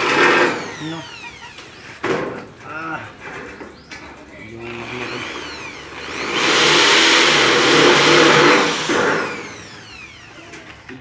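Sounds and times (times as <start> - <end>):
electric drill boring into metal: 0.0 - 1.8, 4.6 - 11.0.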